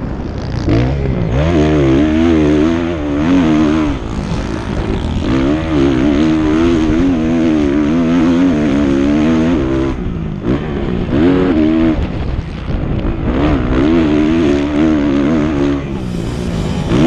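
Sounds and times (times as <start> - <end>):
motocross bike engine revving: 0.0 - 17.0.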